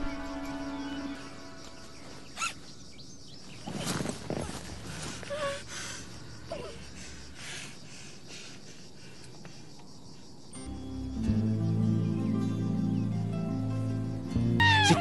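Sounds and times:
bag rustling: 0:03.5 - 0:05.3.

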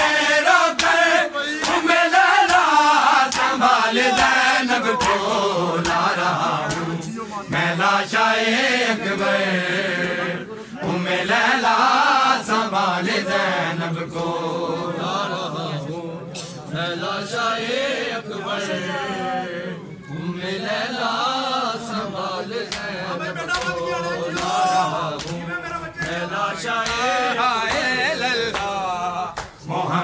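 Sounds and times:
men chanting a lament: 0:00.0 - 0:30.0
hands slapping chest: 0:00.8 - 0:01.0, 0:01.6 - 0:02.7, 0:03.3 - 0:04.4, 0:05.0 - 0:06.9, 0:22.7 - 0:22.9, 0:23.5 - 0:24.6, 0:26.8 - 0:27.1.

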